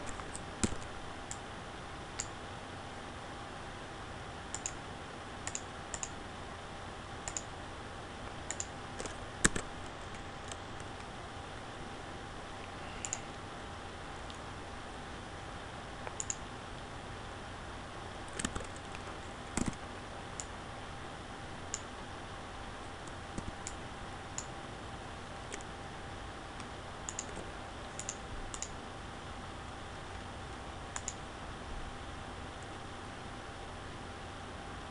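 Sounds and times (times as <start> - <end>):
computer mouse clicks: 0.0 - 1.4, 2.2 - 2.4, 4.5 - 4.8, 5.4 - 6.2, 7.2 - 7.5, 8.5 - 11.1, 12.6 - 13.3, 16.0 - 16.4, 18.3 - 19.8, 23.0 - 23.8, 25.5 - 25.7, 26.6 - 28.8, 30.9 - 31.2
faint steady hum: 0.0 - 34.9.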